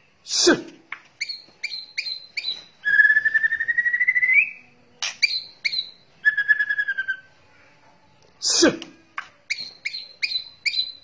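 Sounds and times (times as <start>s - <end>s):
bird chirps: 1.1s - 7.4s, 9.4s - 11.0s.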